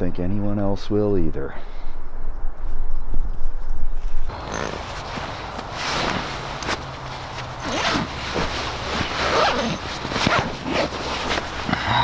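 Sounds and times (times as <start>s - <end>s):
nylon rustling: 4.0s - 11.8s
sleeping bag zipper rasping: 4.3s - 11.8s.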